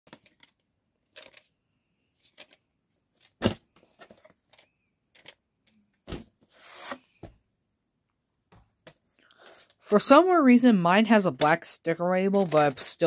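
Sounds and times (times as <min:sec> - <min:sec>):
objects being handled: 0:00.1 - 0:07.4, 0:12.2 - 0:13.0.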